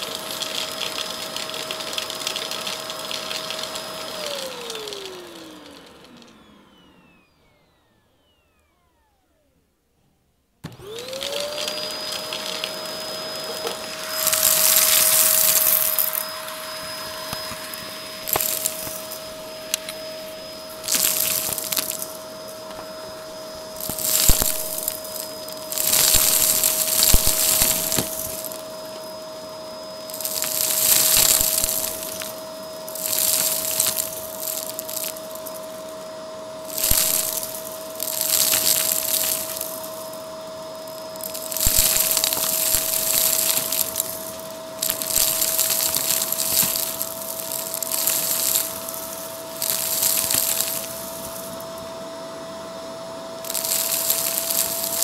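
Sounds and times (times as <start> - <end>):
vacuum cleaner motor whine: 0.0 - 55.0
debris crunching and rattling: 41.2 - 51.6.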